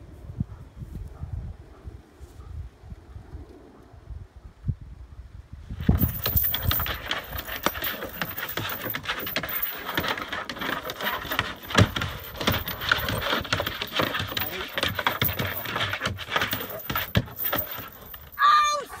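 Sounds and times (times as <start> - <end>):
metal chain rattling: 5.8 - 18.6.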